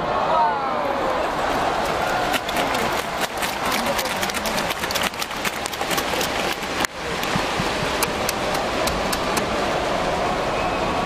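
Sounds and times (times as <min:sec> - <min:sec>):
stadium crowd voices: 0:00.0 - 0:11.0
sharp claps and clicks: 0:01.4 - 0:09.5.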